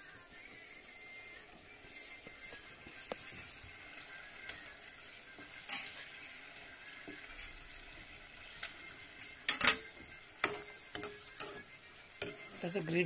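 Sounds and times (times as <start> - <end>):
faint sizzle: 0.0 - 13.0
metal spoon clinking against pan: 5.5 - 6.1, 9.2 - 12.6.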